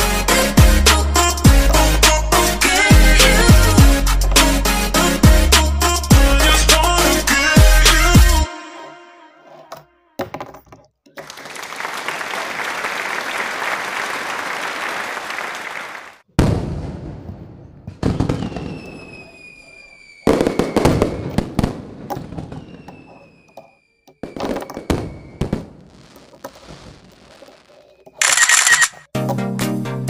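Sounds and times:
whistles falling in pitch: 0:18.2 - 0:21.3, 0:22.5 - 0:25.6.

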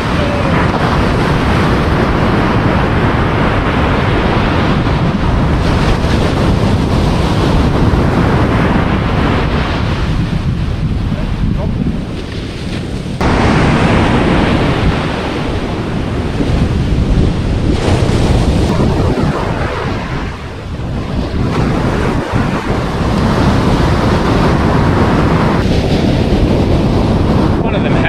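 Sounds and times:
ocean surf washing onto beach: 0:00.0 - 0:28.0
wind buffeting microphone: 0:00.0 - 0:28.0.

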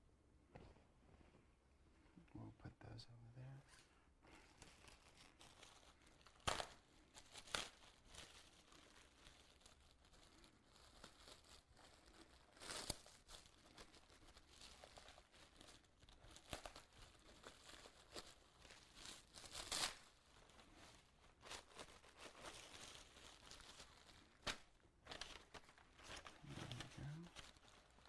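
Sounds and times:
plastic sheet rustling and crinkling: 0:03.7 - 0:28.0.

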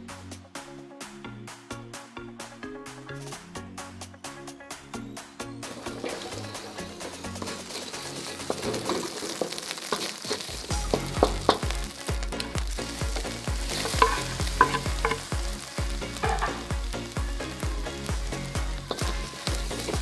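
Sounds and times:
egg sizzling in a wok: 0:05.7 - 0:20.0
spatula scraping a pan: 0:05.8 - 0:10.5
steady low beat: 0:10.7 - 0:20.0.

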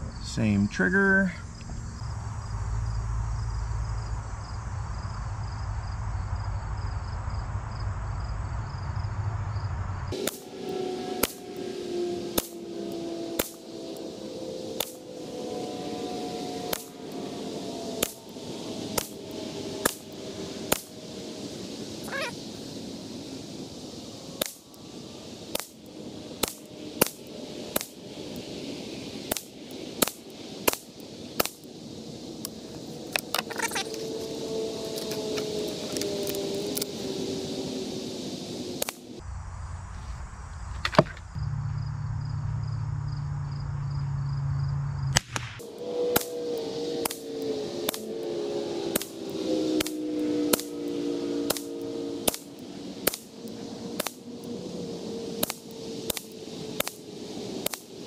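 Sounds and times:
low steady hum: 0:00.0 - 0:22.2, 0:39.1 - 0:45.8.

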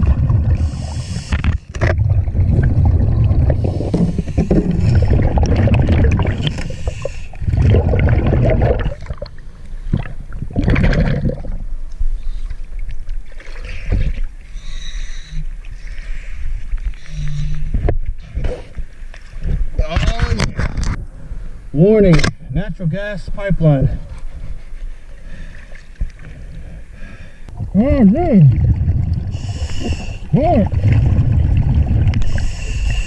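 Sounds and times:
hissing regulator inhales: 0:00.6 - 0:01.4, 0:06.5 - 0:07.4, 0:29.3 - 0:30.3, 0:32.2 - 0:33.0
bubbling exhales underwater: 0:01.9 - 0:09.4, 0:10.0 - 0:11.6, 0:28.4 - 0:32.4.

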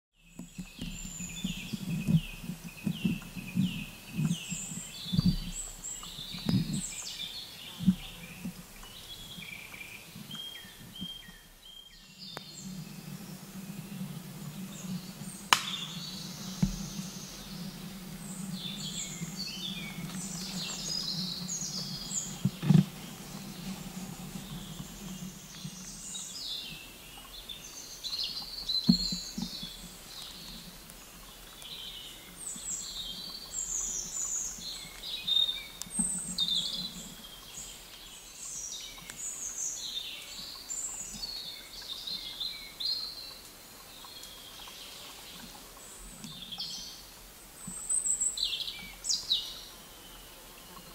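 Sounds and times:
songbirds singing and chirping: 0:00.1 - 0:50.9
low steady hum: 0:00.4 - 0:38.4
sharp knocks: 0:15.5 - 0:15.9.

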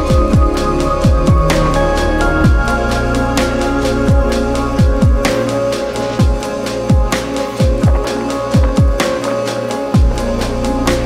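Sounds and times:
electronic music with synth chords: 0:00.0 - 0:11.0
deep bass drum hits: 0:00.1 - 0:02.9.

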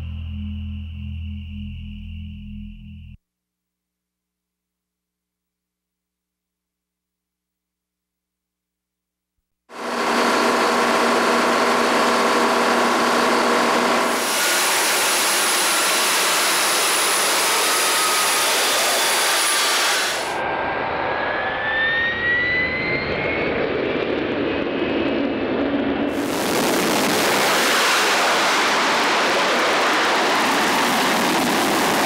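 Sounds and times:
jet engine running: 0:09.7 - 0:32.0
jet engine whine rising: 0:09.7 - 0:32.0.

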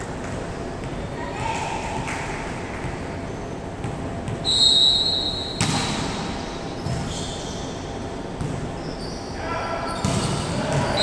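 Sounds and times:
referee's whistle: 0:04.4 - 0:05.6.

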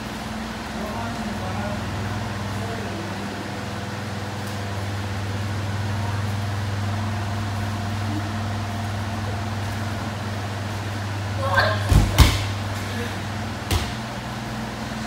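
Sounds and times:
electric fans humming and whirring: 0:00.0 - 0:15.0.

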